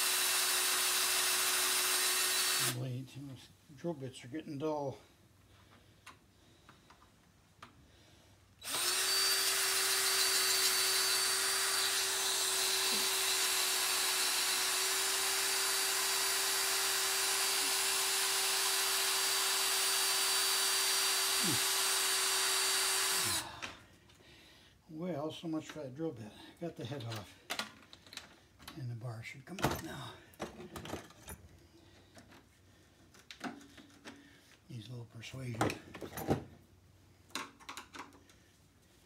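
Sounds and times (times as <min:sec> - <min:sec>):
cordless drill running: 0:00.0 - 0:02.8, 0:08.6 - 0:23.7.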